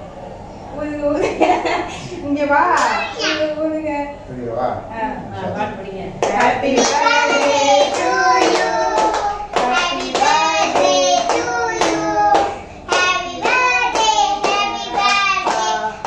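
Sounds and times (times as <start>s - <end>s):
hand clapping: 6.2s - 15.8s
group of voices singing a celebration song: 6.2s - 16.0s.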